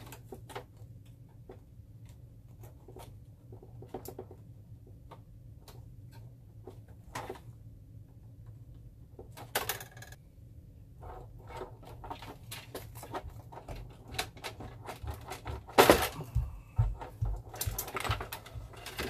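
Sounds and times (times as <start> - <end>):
plastic tank clicking and rattling: 11.4 - 16.2, 17.0 - 19.0.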